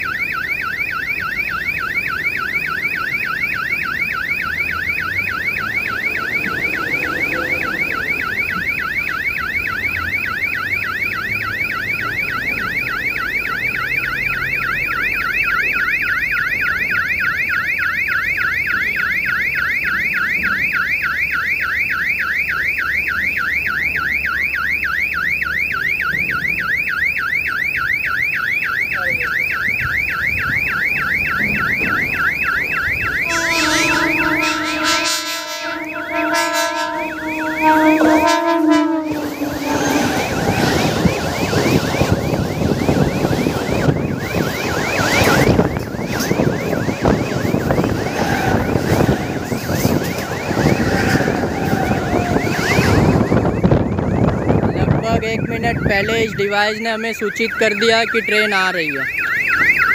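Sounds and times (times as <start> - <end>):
electronic warning siren sweeping: 0.0 - 59.9
train horn: 33.0 - 42.2, 45.1 - 53.4.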